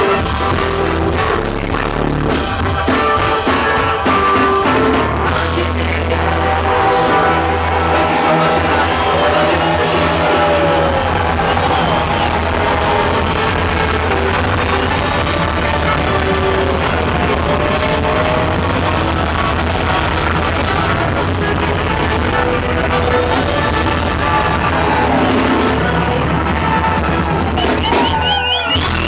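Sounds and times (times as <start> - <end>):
live funk band playing: 0.0 - 29.0.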